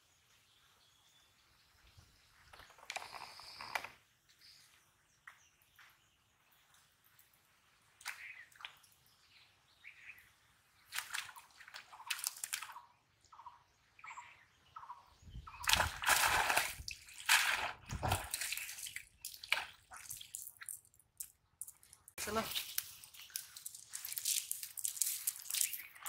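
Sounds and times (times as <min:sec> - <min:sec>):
water dripping: 0:05.3 - 0:09.4, 0:10.8 - 0:13.5, 0:15.5 - 0:26.0
net splashing and sloshing: 0:15.6 - 0:20.5.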